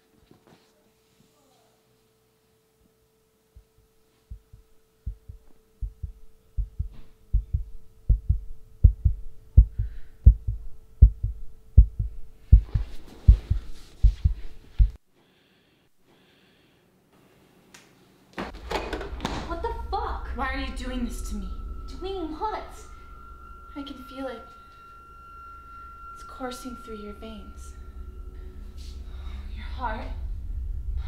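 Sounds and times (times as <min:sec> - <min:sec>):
heartbeat double thumps: 0:03.6 - 0:15.0
steady low drone: 0:04.3 - 0:15.0, 0:19.1 - 0:31.0.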